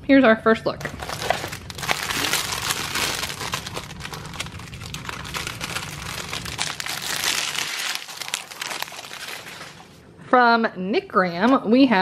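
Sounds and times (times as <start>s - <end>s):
plastic packaging crinkling: 0.8s - 10.0s.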